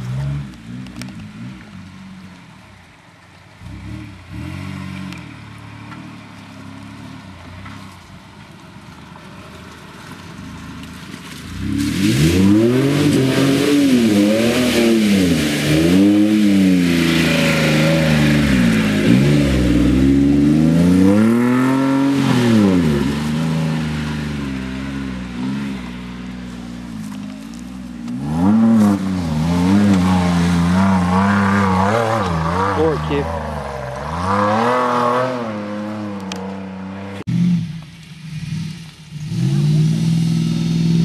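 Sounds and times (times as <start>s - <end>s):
truck engine revving: 11.5s - 41.0s.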